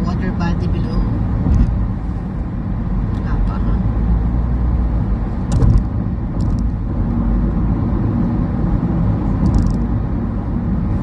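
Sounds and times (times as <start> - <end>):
road and tyre rumble: 0.0 - 11.0
car bump: 5.4 - 6.7.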